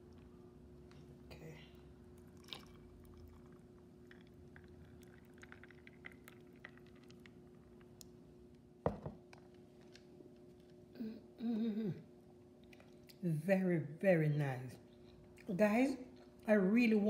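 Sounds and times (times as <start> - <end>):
steady low hum: 0.0 - 17.0
juice trickling over ice: 2.2 - 8.1.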